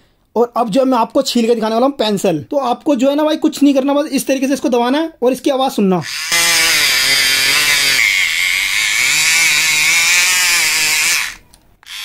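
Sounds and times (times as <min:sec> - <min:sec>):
electric pencil sharpener whining: 0:06.0 - 0:12.0.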